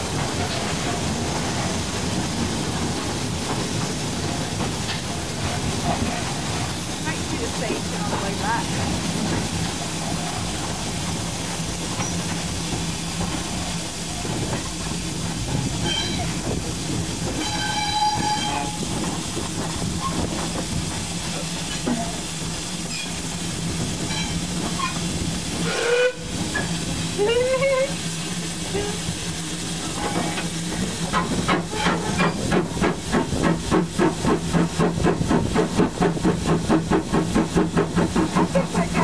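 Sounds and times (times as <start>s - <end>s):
steam locomotive running: 0.0s - 39.0s
locomotive whistle blast: 17.4s - 18.8s, 25.6s - 26.3s.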